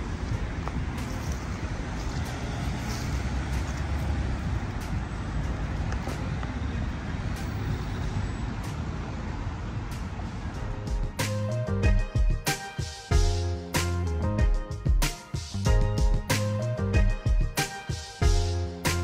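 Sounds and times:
car engine and tyre rumble: 0.0s - 11.8s.

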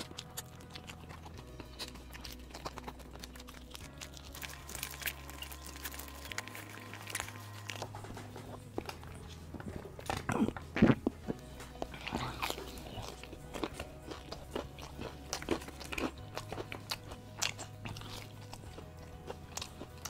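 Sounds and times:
fried chicken crackling: 0.0s - 8.0s
chewing: 0.0s - 20.0s
soft background music: 0.0s - 20.0s.

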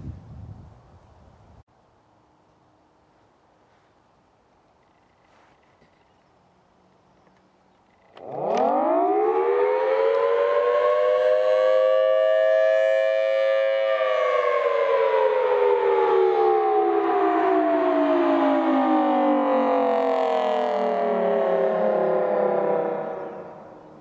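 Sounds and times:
two-tone warning siren wailing: 8.2s - 24.0s.

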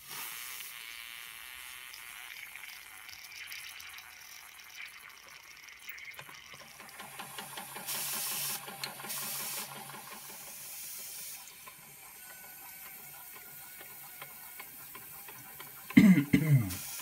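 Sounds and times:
steam hissing and sputtering: 0.0s - 5.1s, 5.8s - 17.0s
bursts of steam: 7.8s - 11.5s.

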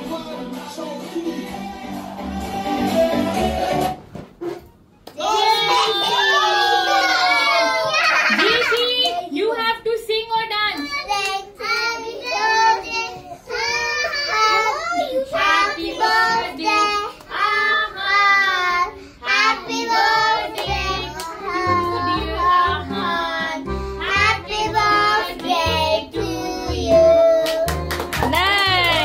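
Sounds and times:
child singing: 10.8s - 27.7s.

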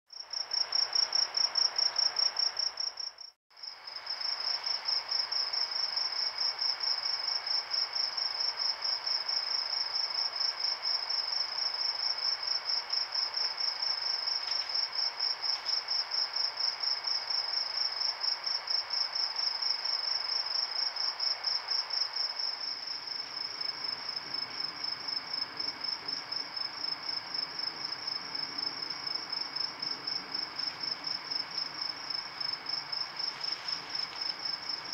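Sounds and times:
crickets chirping: 0.1s - 34.9s.

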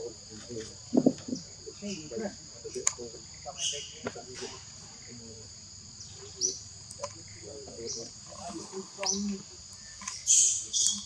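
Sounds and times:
insects droning high-pitched: 0.0s - 11.0s.

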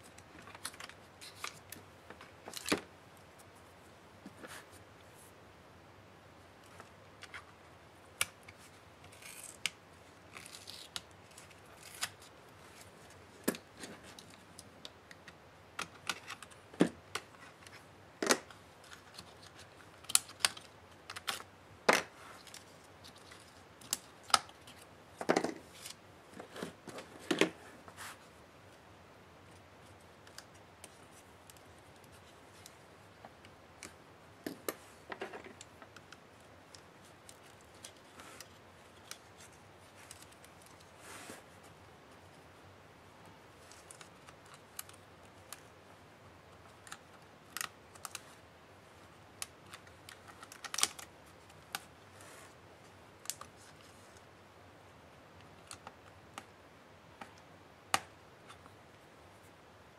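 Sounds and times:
soft rustles: 0.0s - 5.4s, 25.6s - 28.8s, 34.6s - 42.5s, 51.2s - 54.3s.

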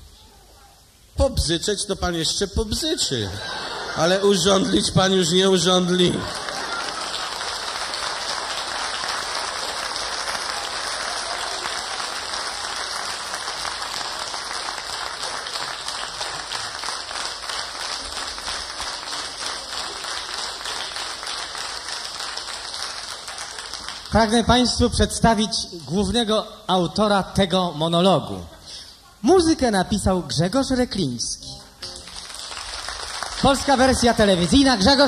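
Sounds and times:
audience applauding: 5.7s - 24.8s, 32.0s - 35.0s.

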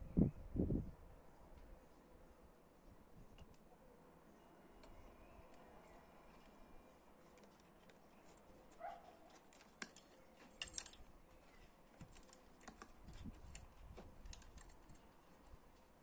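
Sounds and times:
small metal parts clicking: 9.3s - 11.4s, 12.0s - 15.1s.

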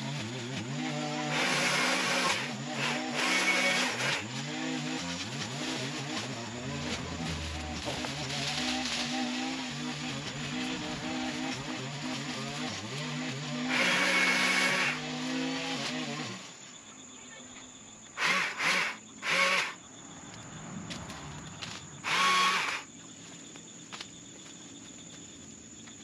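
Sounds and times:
small gas engine revving: 0.0s - 16.7s, 18.1s - 19.9s, 20.7s - 22.9s.

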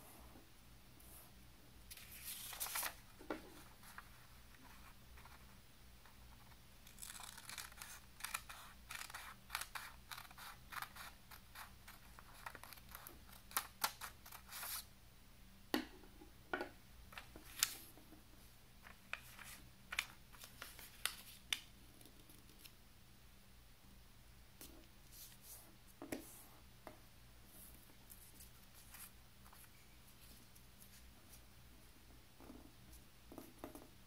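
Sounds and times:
scissors snipping paper: 6.9s - 11.1s.

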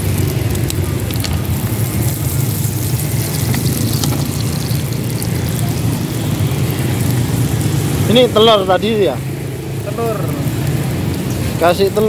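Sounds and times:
steady low rumble: 0.0s - 8.1s
oil sizzling and crackling: 0.0s - 12.0s.

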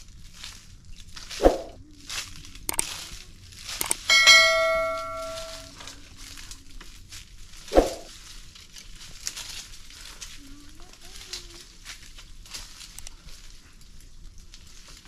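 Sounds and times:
metal object ringing like a bell: 3.8s - 5.8s.

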